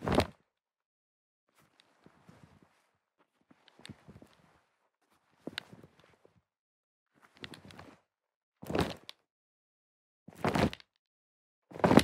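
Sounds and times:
leather jacket thud and rustle: 10.3s - 10.8s, 11.7s - 12.0s.

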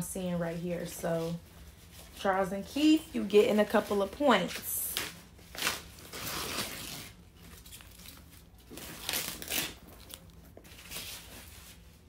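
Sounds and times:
packing wrap rustling and crinkling: 3.6s - 12.0s.

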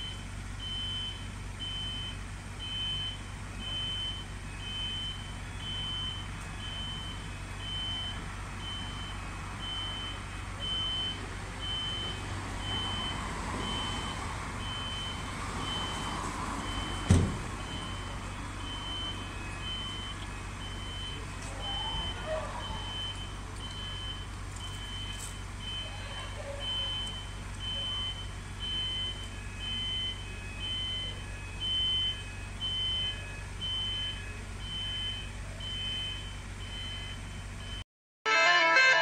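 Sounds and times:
electronic warning beeps: 0.0s - 37.8s
fainter lower tone: 38.3s - 39.0s.

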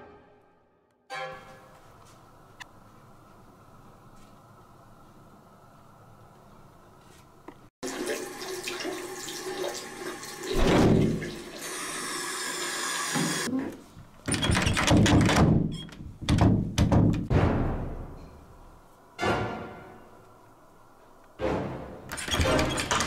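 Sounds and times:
water running in washbasin: 7.8s - 13.5s
door handle thunks and rattles: 14.2s - 17.3s.

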